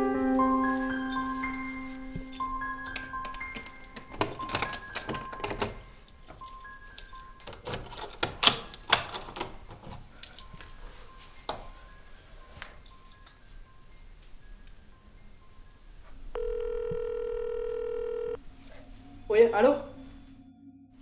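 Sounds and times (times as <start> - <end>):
soft background music: 0.0 - 21.0
door knob and lock clicking: 2.9 - 6.5, 7.4 - 10.1.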